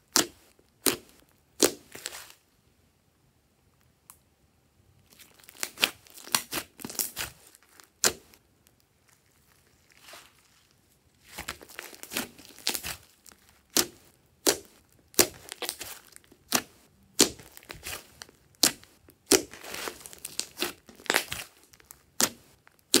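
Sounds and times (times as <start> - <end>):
slime popping and crackling: 0.1 - 2.3, 5.1 - 8.8, 11.2 - 23.0.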